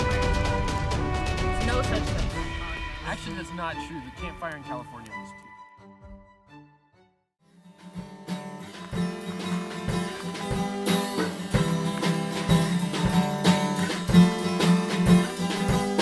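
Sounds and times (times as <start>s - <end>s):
strummed guitar music with beat: 7.6s - 16.0s.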